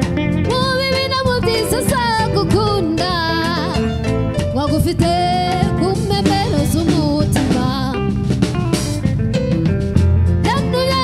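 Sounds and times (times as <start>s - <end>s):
band with keyboard: 0.0s - 11.0s
woman singing: 0.4s - 8.1s, 10.4s - 11.0s.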